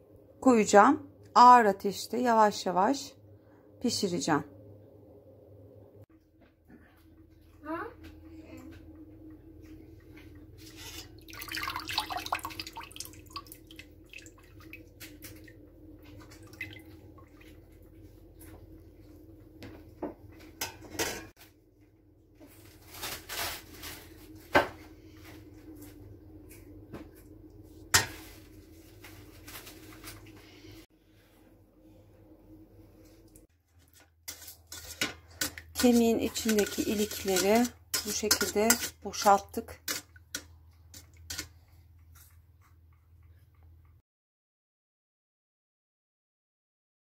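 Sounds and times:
liquid splashing and dripping: 0:11.0 - 0:17.7.

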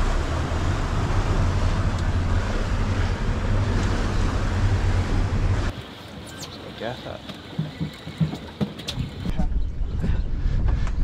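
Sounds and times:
low rumble: 0:00.0 - 0:05.7, 0:09.2 - 0:11.0
waves: 0:00.0 - 0:09.3
wind rushing over microphone: 0:08.9 - 0:11.0.

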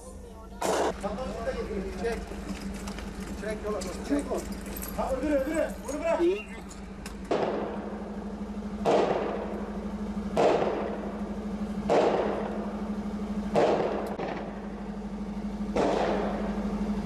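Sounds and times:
vehicle engine idling: 0:00.0 - 0:17.0
gunshots with long echo: 0:07.3 - 0:15.0, 0:15.7 - 0:16.7.

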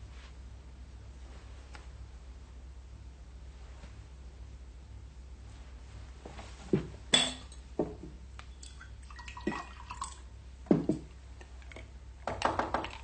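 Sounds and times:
glasses and dishes clinking: 0:07.1 - 0:07.6.

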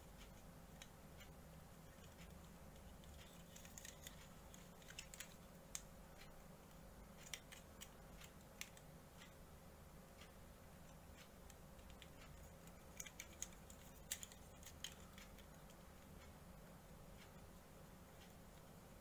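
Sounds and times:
plastic model parts clicking: 0:01.8 - 0:05.9, 0:07.2 - 0:08.9, 0:10.9 - 0:15.8.

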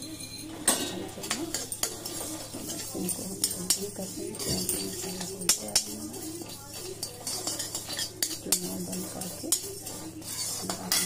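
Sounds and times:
spatula clinking on metal pan: 0:00.0 - 0:11.0
spatula scraping dry ingredients: 0:00.5 - 0:11.0.

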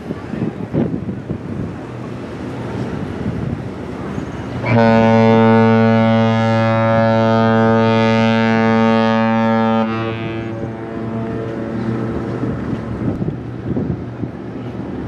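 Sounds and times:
ship's horn long deep blast: 0:02.2 - 0:14.2.

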